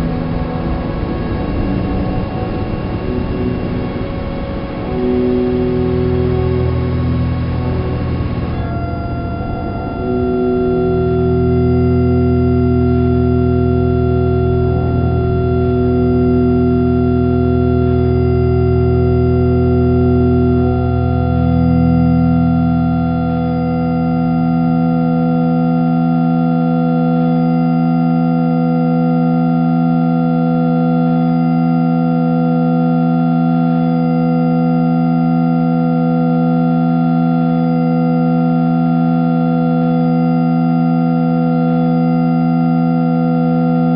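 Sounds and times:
sustained organ chords: 0.0 - 25.6.

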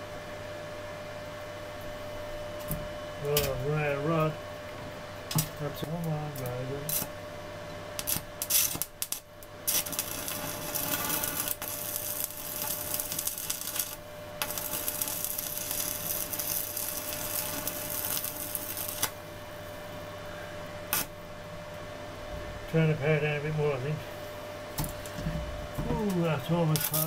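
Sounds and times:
welding arc crackling: 5.3 - 7.2, 8.0 - 19.4, 20.8 - 21.2, 24.7 - 27.0.

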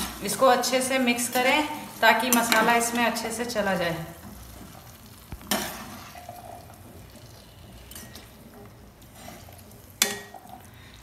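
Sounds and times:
spoon clanking against metal pan: 10.0 - 10.4.

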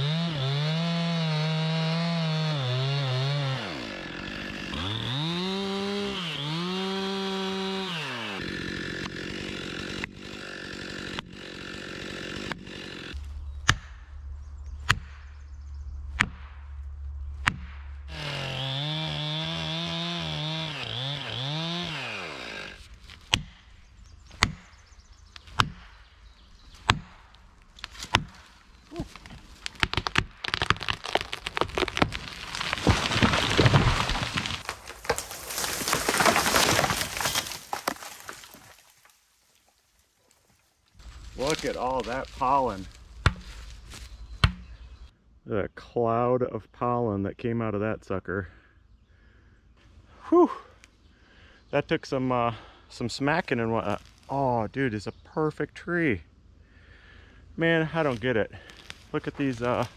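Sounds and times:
chainsaw cutting tree: 0.0 - 13.8, 17.5 - 23.6, 26.7 - 38.9.

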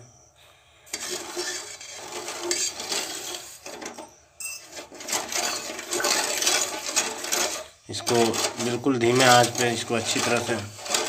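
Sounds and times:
spatula scraping a metal pan: 0.9 - 11.0.

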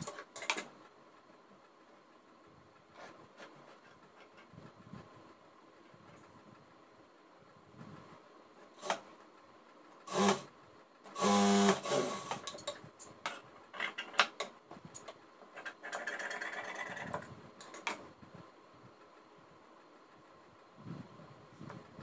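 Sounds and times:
sewing machine running: 10.0 - 10.5, 11.1 - 12.5.

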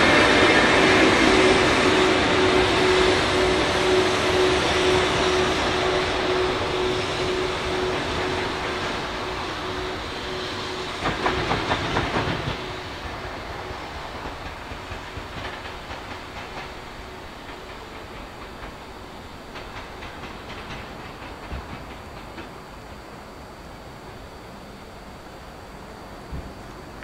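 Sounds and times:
locomotive running noise: 0.0 - 27.0.

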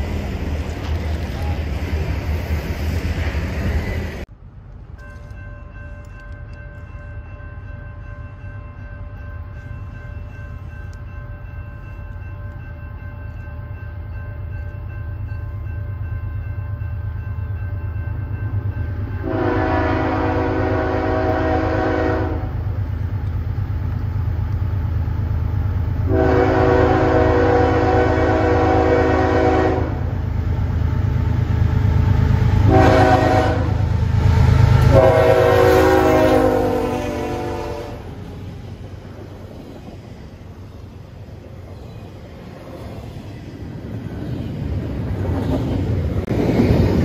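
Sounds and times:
diesel locomotive rumble: 0.0 - 47.0
locomotive horn: 19.2 - 22.6, 26.0 - 30.2, 32.6 - 34.0, 34.7 - 38.2.

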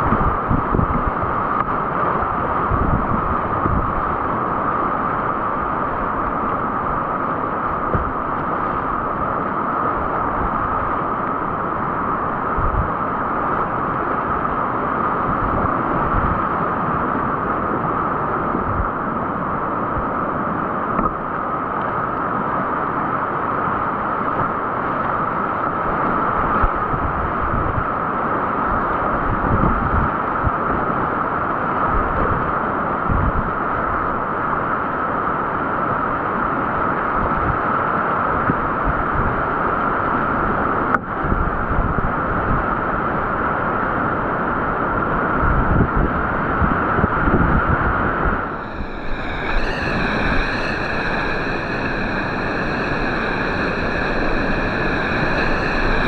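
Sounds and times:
wind buffeting microphone: 47.1 - 56.0.

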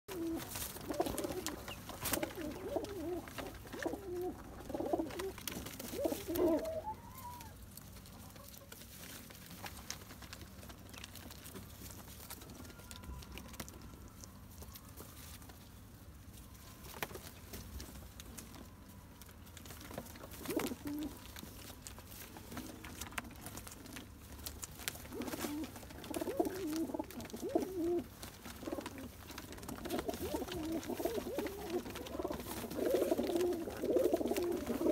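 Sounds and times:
pigeons cooing: 0.1 - 7.6, 20.2 - 21.3, 24.9 - 34.9.

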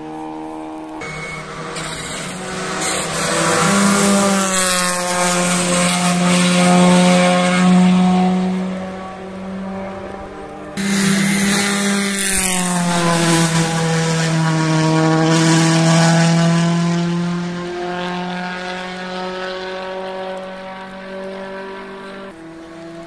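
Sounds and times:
rally car engine at high revs: 0.0 - 23.0.

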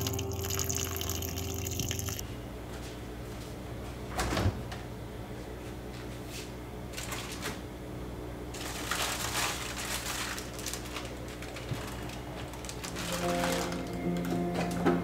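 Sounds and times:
steady low hum: 0.0 - 7.0.

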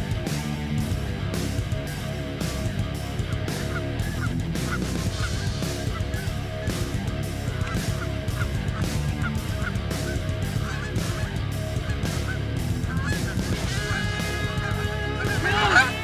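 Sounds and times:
geese honking: 2.6 - 16.0.

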